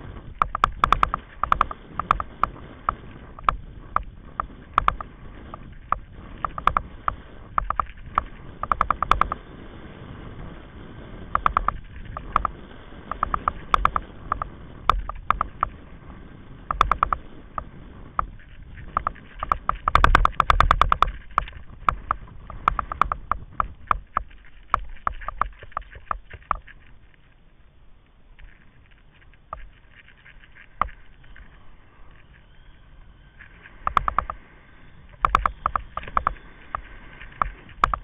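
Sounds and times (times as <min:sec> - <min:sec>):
buggy rumbling over sand: 0:00.0 - 0:38.0
buggy rattling clicks: 0:00.2 - 0:09.4, 0:11.3 - 0:15.8, 0:16.7 - 0:27.4, 0:33.4 - 0:34.4, 0:35.1 - 0:38.0.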